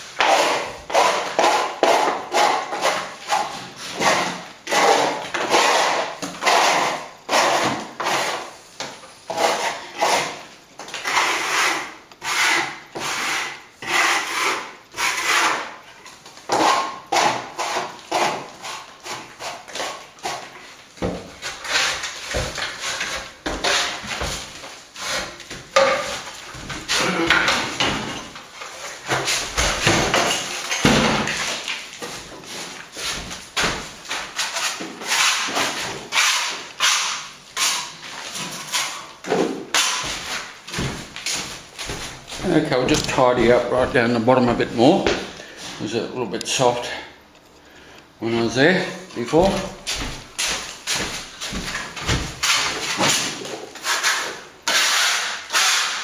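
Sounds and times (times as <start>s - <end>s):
steel scraper rasping on plaster: 0.2s - 8.6s, 9.3s - 15.8s, 16.5s - 20.5s, 21.4s - 24.3s, 34.1s - 39.1s, 39.7s - 40.5s, 52.4s - 56.0s.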